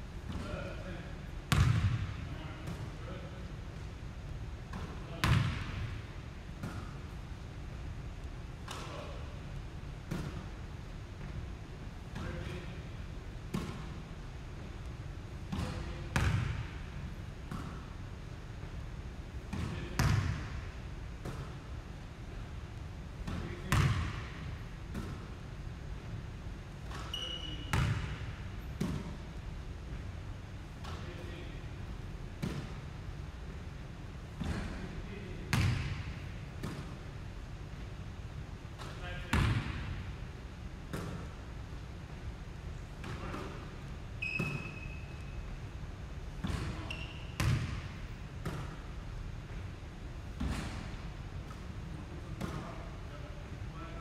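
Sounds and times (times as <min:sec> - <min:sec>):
basketballs bouncing on hardwood floor: 0:01.5 - 0:02.8, 0:04.7 - 0:05.9, 0:15.5 - 0:16.6, 0:19.5 - 0:20.4, 0:23.2 - 0:25.2, 0:26.9 - 0:28.2, 0:34.4 - 0:34.8, 0:35.5 - 0:36.9, 0:38.8 - 0:40.0, 0:46.4 - 0:48.7
short high squeak: 0:27.2 - 0:27.7, 0:44.2 - 0:45.4, 0:46.8 - 0:47.4
high squeak: 0:44.2 - 0:45.2.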